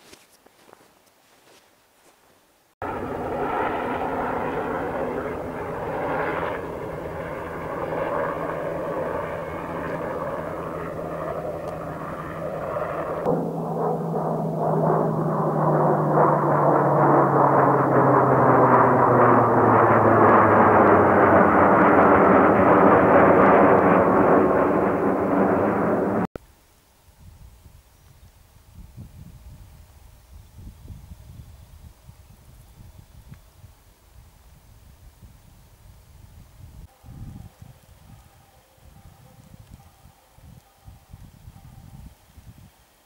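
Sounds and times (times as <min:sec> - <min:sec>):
fighter jet flying overhead: 0:02.8 - 0:26.4.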